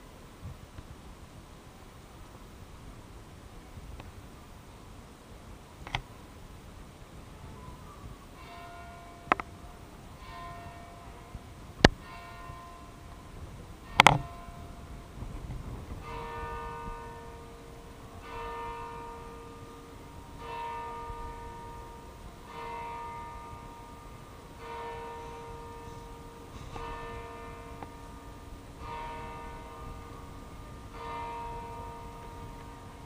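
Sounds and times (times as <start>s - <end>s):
church bell striking: 8.4s - 15.2s, 16.0s - 33.0s.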